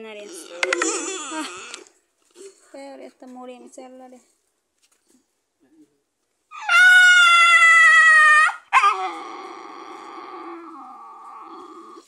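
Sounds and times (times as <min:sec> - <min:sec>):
dog howling in pain: 0:06.5 - 0:12.0.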